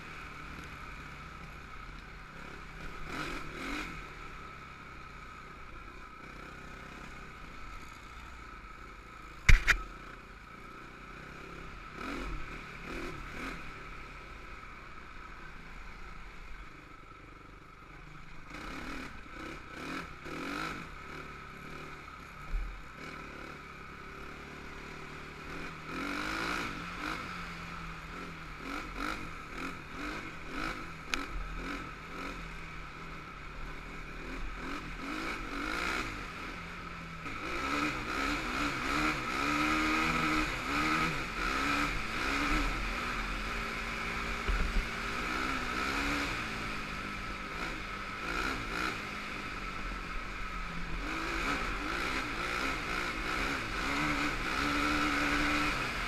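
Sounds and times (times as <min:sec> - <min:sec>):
quad engine revving: 0:02.8 - 0:04.2, 0:18.5 - 0:22.0, 0:23.0 - 0:32.6, 0:33.6 - 0:56.0.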